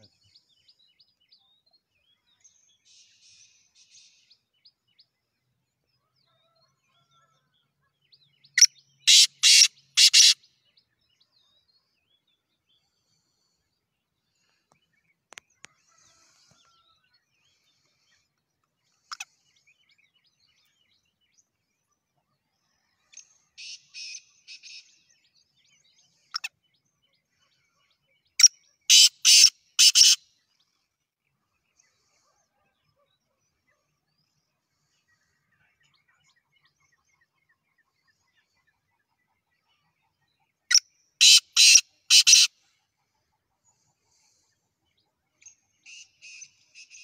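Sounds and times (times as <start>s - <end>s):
francolin calling: 8.6s - 10.4s.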